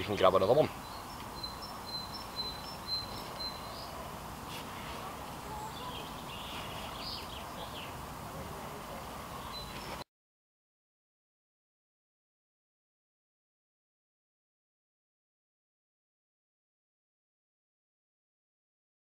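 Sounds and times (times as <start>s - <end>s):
birds chirping and whistling: 0.8s - 4.0s, 5.6s - 8.0s.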